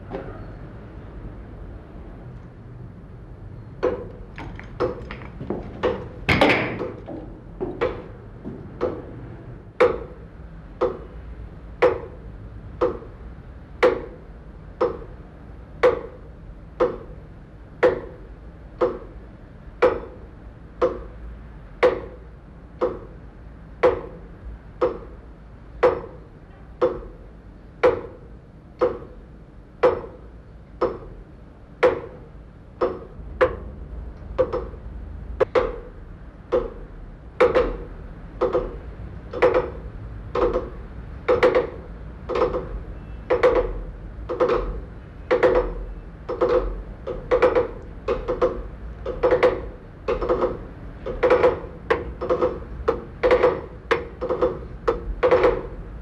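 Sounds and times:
clock ticking metallic clicks: 12.8s - 13.2s, 14.8s - 15.2s, 16.8s - 17.2s, 17.8s - 18.2s, 18.8s - 19.2s, 20.8s - 21.2s, 22.8s - 23.2s, 28.8s - 29.2s, 29.8s - 31.2s, 34.2s - 34.8s, 36.5s - 55.8s.

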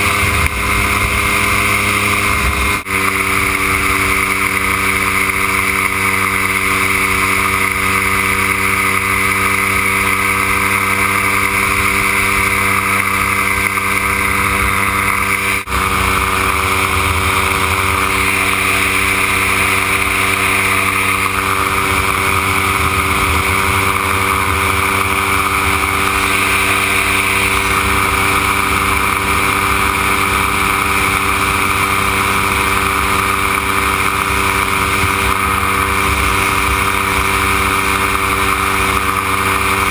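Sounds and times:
aircraft engine and propeller: 0.0s - 39.9s
wind rush over microphone: 10.6s - 39.9s.

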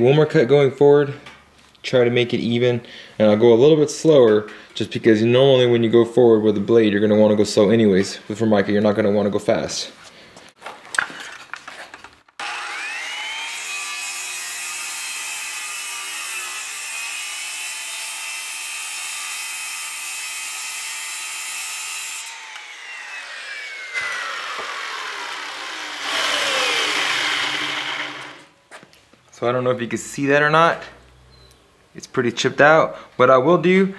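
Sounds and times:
circular saw whine: 12.4s - 16.8s, 22.2s - 28.5s.

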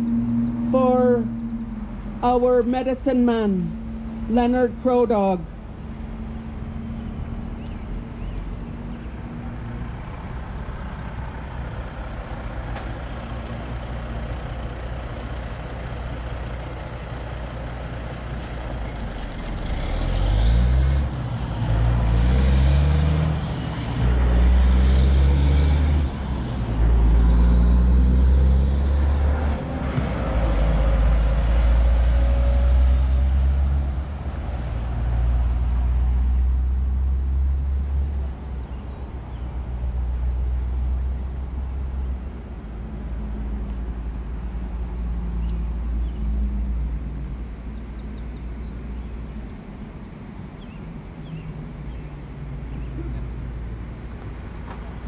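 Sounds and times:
truck diesel engine shifting gears: 0.0s - 39.6s
road traffic hum: 0.0s - 55.0s.

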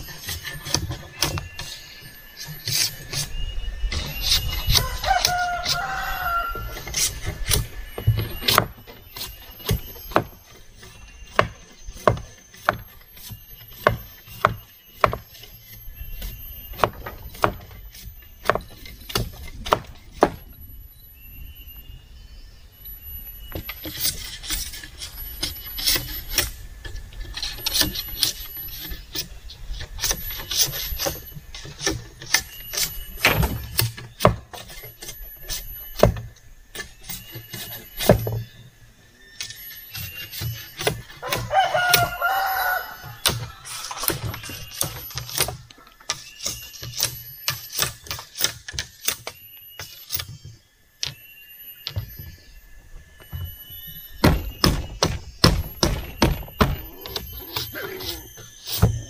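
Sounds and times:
blade scraping bamboo: 0.0s - 20.6s, 23.5s - 38.6s, 39.4s - 52.6s, 53.2s - 59.0s
rooster crowing: 4.7s - 7.1s, 41.2s - 44.0s.

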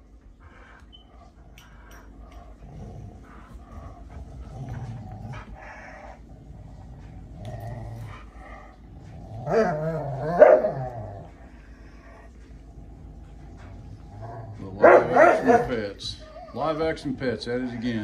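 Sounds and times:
dogs play-growling: 0.3s - 18.0s
dog barking growls: 9.0s - 11.4s, 14.0s - 15.9s.

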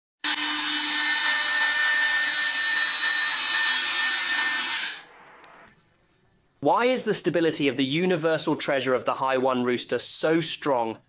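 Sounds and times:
oscillating multi-tool buzzing: 0.2s - 5.1s.

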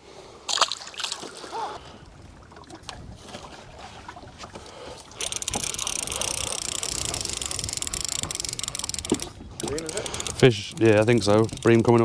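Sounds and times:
water lapping against boat: 0.5s - 12.0s
fishing reel ratchet clicking: 5.2s - 12.0s.

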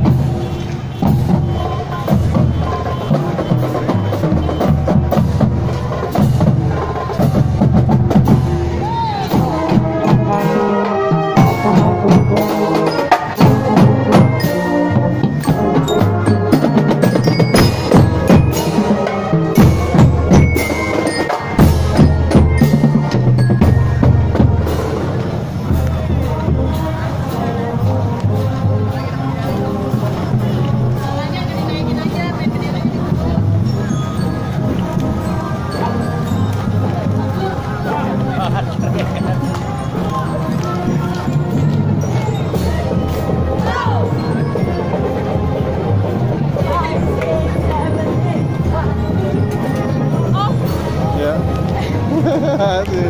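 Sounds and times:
brass horns: 0.0s - 23.3s, 24.0s - 31.6s
marching snare and tenor drums: 0.0s - 53.0s.

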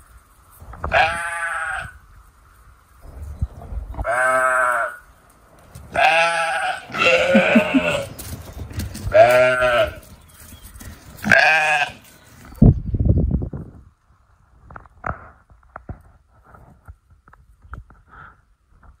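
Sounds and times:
sheep bleating: 4.0s - 5.0s, 5.9s - 8.1s, 9.1s - 10.0s, 11.2s - 12.1s.

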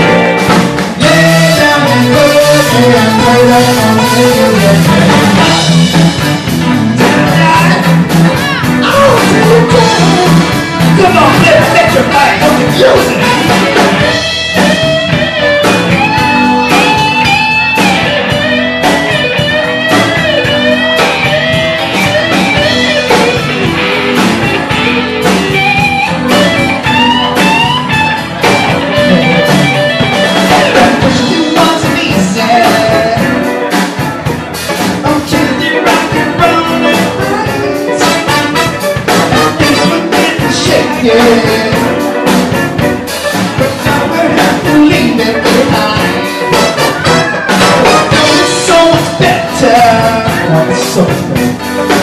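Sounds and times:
drum kit: 0.0s - 52.0s
keyboard: 0.0s - 52.0s
man singing into a microphone: 1.0s - 5.8s, 6.9s - 14.0s, 30.4s - 33.5s, 35.0s - 42.2s, 43.6s - 51.7s.

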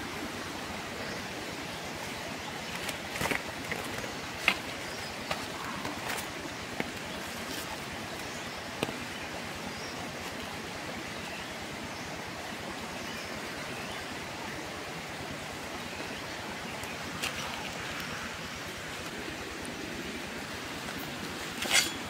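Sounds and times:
running water rushing: 0.0s - 22.0s.

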